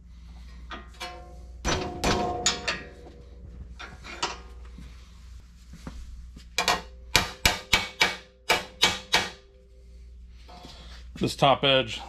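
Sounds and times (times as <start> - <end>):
hammer tapping on metal: 6.6 - 9.4.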